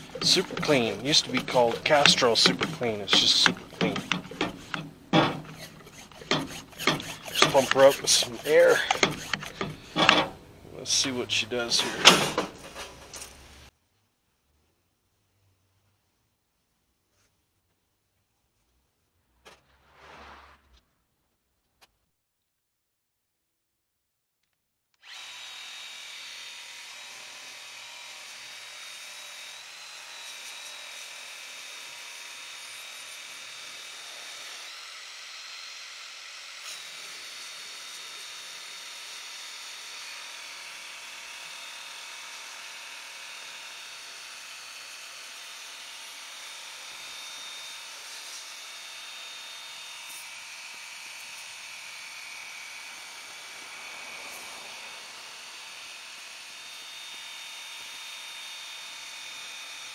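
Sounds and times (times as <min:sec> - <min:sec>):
water jet hissing: 0:00.0 - 0:11.3
pressure washer motor whining: 0:00.0 - 0:13.3.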